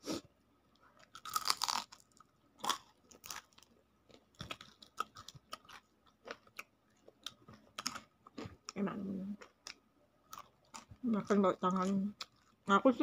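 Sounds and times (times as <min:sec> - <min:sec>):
crunchy biting and chewing: 0:01.0 - 0:08.8, 0:09.4 - 0:11.0.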